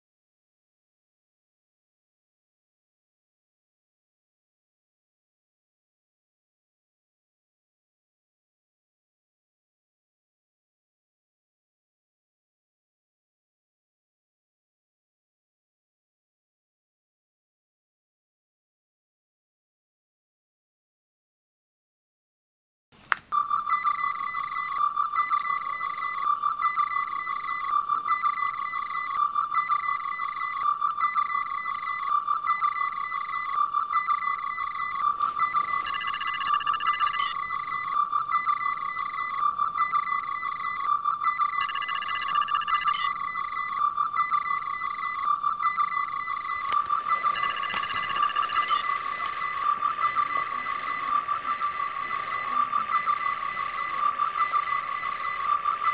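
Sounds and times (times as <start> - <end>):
high electronic beeps: 23.4 - 55.9
high electronic chirps: 23.4 - 55.9
warbling electronic tone: 23.4 - 55.9.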